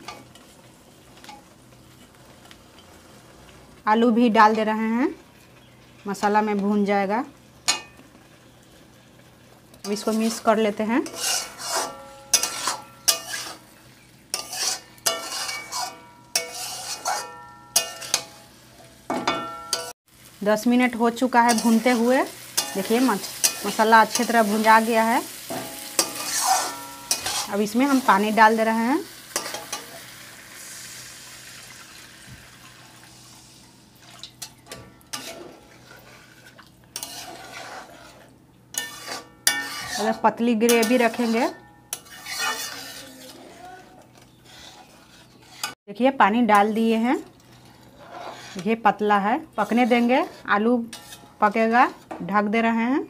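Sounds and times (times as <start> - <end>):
metal spatula scraping a pan: 9.8 - 20.0, 21.1 - 31.0, 34.4 - 45.8, 46.6 - 52.2
water hissing in hot pan: 20.1 - 34.4.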